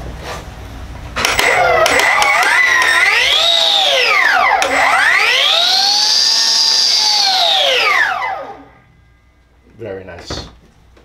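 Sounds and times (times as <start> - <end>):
cut-off saw whining: 1.2 - 9.0.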